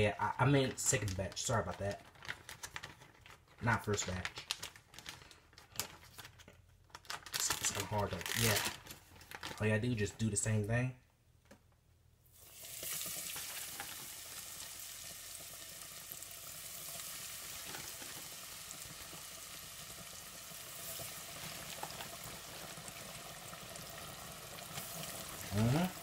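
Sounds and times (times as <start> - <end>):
fish sizzling in deep fryer: 12.3 - 26.0.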